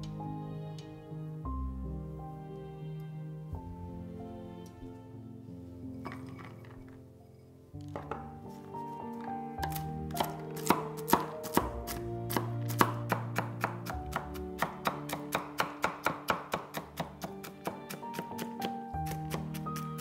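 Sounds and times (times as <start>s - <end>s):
background music: 0.0s - 20.0s
knife chopping on wooden board: 9.6s - 19.8s.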